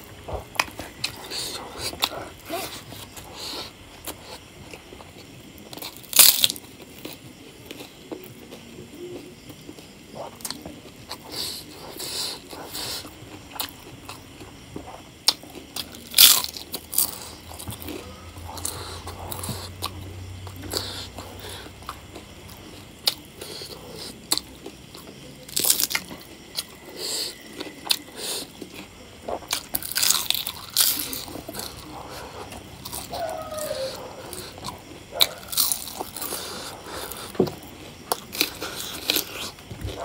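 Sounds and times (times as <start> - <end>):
crunching crisp wafer: 5.6 - 9.2, 15.2 - 20.0, 23.0 - 40.0.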